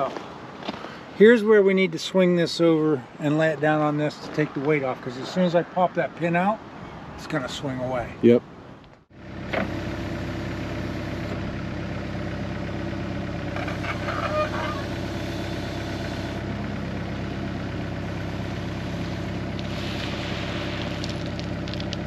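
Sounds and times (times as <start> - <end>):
excavator diesel engine running: 9.1 - 22.0.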